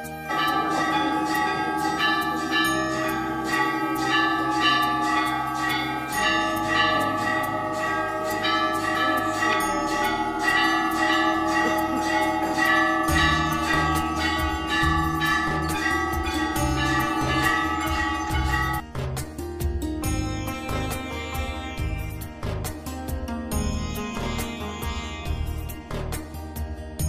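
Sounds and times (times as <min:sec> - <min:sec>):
low steady drone: 0:00.0 - 0:18.8
bells ringing in rapid strikes: 0:00.0 - 0:27.0.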